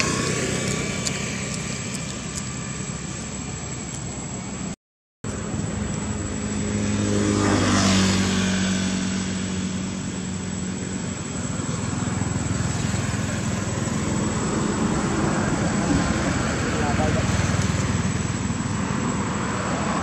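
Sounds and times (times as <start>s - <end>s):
motor engine droning: 0.0s - 20.0s.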